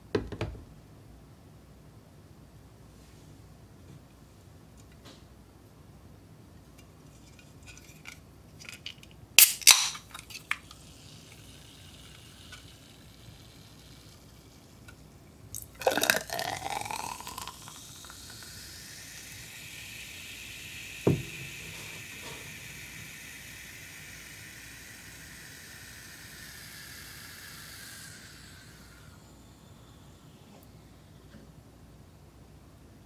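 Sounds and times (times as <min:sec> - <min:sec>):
can pull tab cracking: 0:08.0 - 0:18.9
fizzy drink pouring: 0:09.4 - 0:30.8
fizzing hiss: 0:09.4 - 0:31.4.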